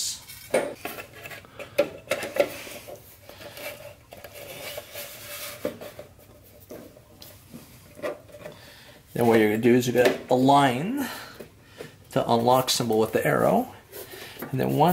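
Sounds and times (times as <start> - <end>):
metal cover sliding and scraping: 0.0 - 9.5.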